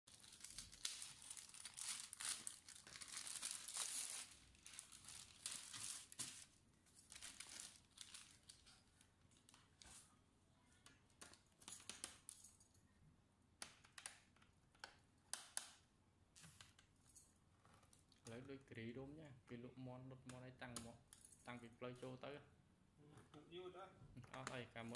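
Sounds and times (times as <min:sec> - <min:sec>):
plastic wrapping crinkling: 0:00.1 - 0:10.0.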